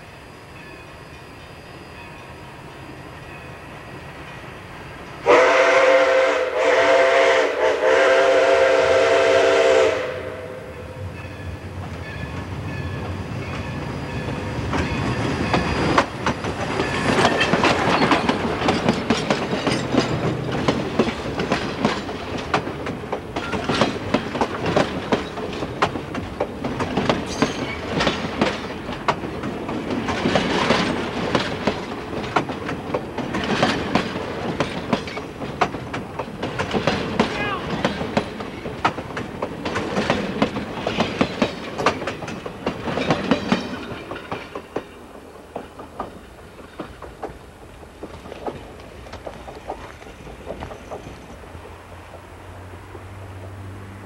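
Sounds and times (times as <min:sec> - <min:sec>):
train rolling past: 0:00.0 - 0:54.0
steam whistle blast: 0:05.2 - 0:11.0
wheels clicking over rail joints: 0:11.8 - 0:53.2.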